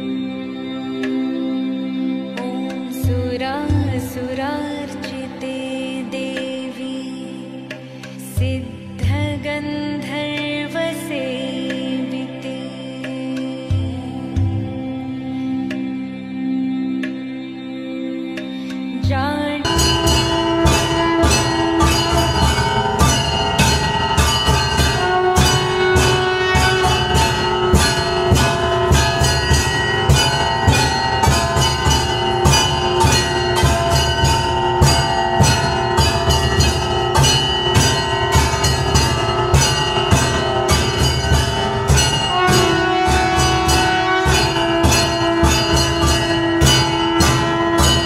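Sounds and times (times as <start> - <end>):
low thudding beat: 19.7 - 48.0
temple bell ringing rapidly: 19.7 - 48.0.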